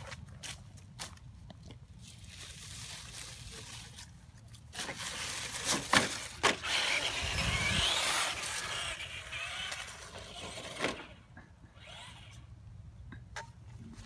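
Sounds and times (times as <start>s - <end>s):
toy truck electric motor whining: 4.9s - 12.5s.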